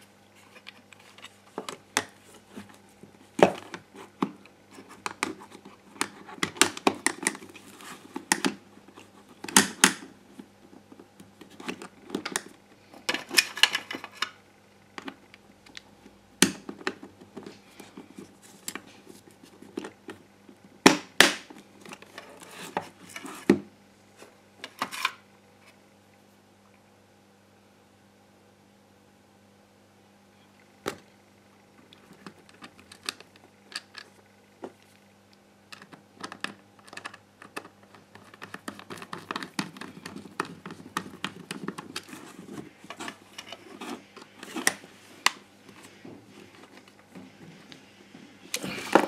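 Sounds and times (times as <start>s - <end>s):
plastic parts clicking and scraping: 0.4s - 14.4s, 31.8s - 34.9s, 35.7s - 47.2s.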